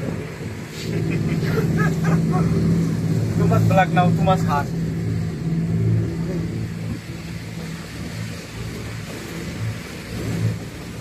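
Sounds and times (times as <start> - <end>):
motorboat engine hum: 0.0 - 11.0
water hissing: 0.0 - 11.0
wind: 0.0 - 11.0.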